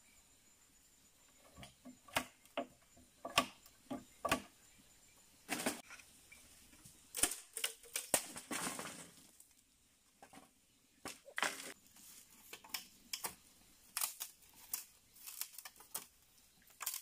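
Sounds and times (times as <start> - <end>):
leaves rustling: 13.8 - 17.0.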